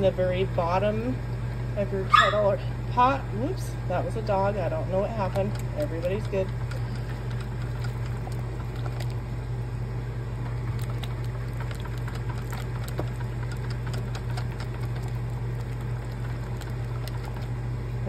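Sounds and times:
steady low hum: 0:00.0 - 0:18.0
whisk beating gravy in saucepan: 0:04.2 - 0:09.5, 0:10.3 - 0:17.8.

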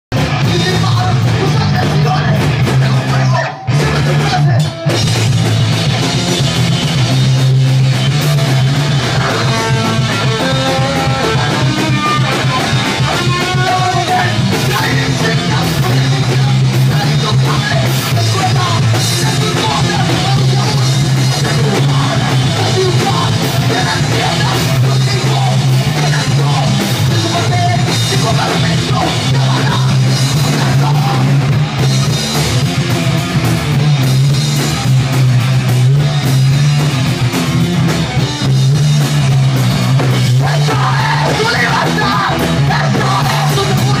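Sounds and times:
rock band playing: 0:00.1 - 0:44.0
person singing: 0:08.9 - 0:31.5, 0:40.2 - 0:44.0.

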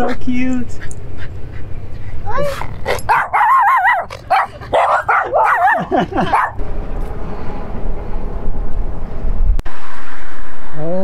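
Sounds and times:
steady low rumble: 0:00.0 - 0:10.9
small dogs yipping and whining: 0:02.1 - 0:06.6.

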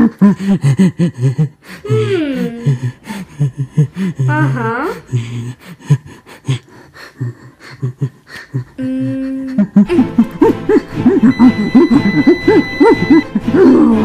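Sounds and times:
person making vocal noises: 0:00.0 - 0:11.2
person humming: 0:01.2 - 0:05.5, 0:07.2 - 0:14.0.

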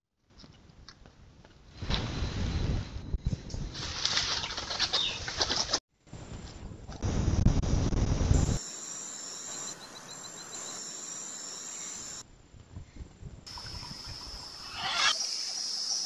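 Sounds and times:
insect trill: 0:08.4 - 0:12.2, 0:13.5 - 0:16.0
insects buzzing: 0:08.4 - 0:12.2.

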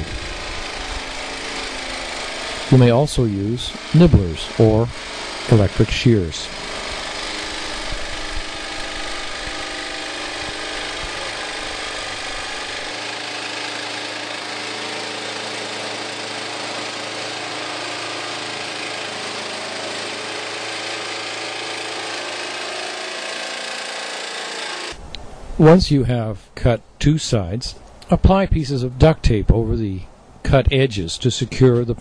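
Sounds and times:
power tool cutting sheet metal: 0:00.0 - 0:25.0.

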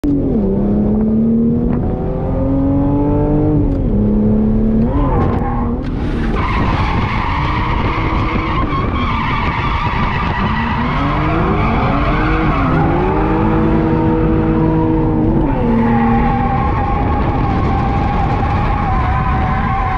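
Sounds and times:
car engine revving high: 0:00.1 - 0:19.3
tyres squealing and skidding: 0:04.9 - 0:19.9.

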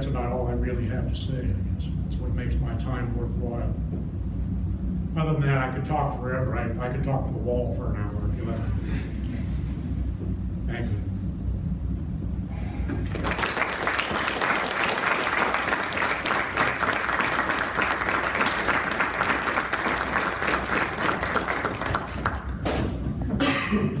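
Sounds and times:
audience applauding: 0:13.0 - 0:22.6.

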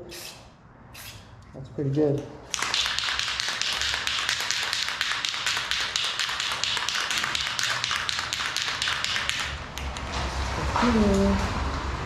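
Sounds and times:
spray paint can hissing: 0:02.5 - 0:09.6.

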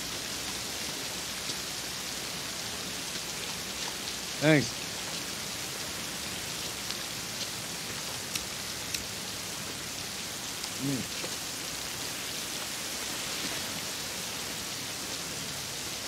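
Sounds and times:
heavy rain pouring onto pavement: 0:00.0 - 0:16.0
sharp drip ticks: 0:06.5 - 0:09.1
short low voice: 0:10.8 - 0:11.1.

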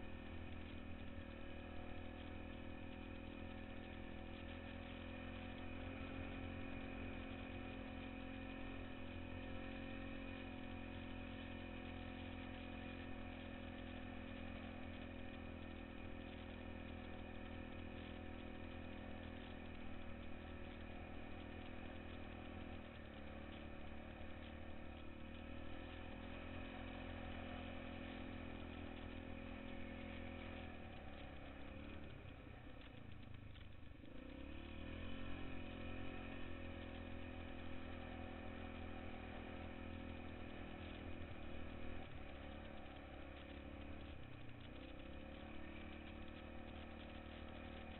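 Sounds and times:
atv engine running: 0:00.0 - 0:47.9.

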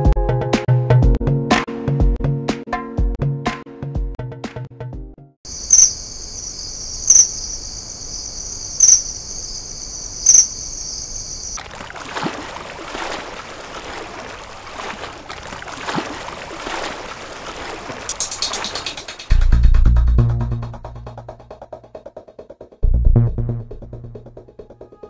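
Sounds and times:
high-pitched insect-like buzz: 0:05.5 - 0:11.6
scattered ticks: 0:05.6 - 0:06.1, 0:06.9 - 0:07.7, 0:08.8 - 0:09.2, 0:10.2 - 0:11.6.

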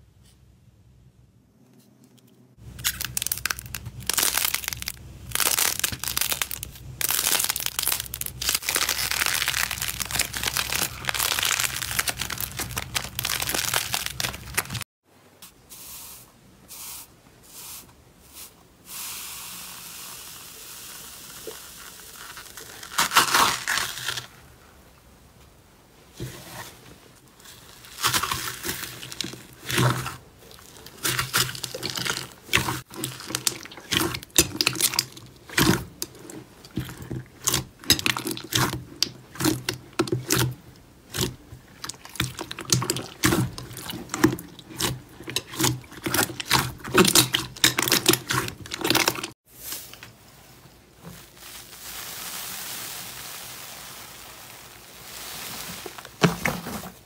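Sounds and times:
foam slime crackling: 0:02.6 - 0:14.9, 0:19.3 - 0:24.4, 0:27.2 - 0:57.0
slime squelching and popping: 0:02.7 - 0:14.8, 0:27.9 - 0:49.4.

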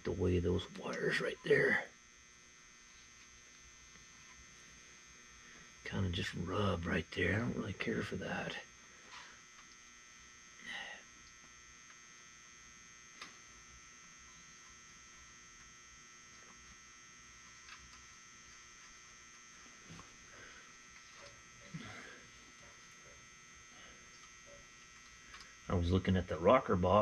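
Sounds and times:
steady electrical hum: 0:00.0 - 0:27.0.

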